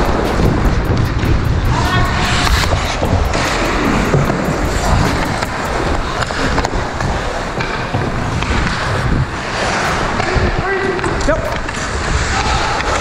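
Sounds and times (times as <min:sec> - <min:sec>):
sharp clacks: 0:00.0 - 0:06.8
wind rumble on microphone: 0:00.0 - 0:13.0
skates scraping on ice: 0:06.2 - 0:13.0.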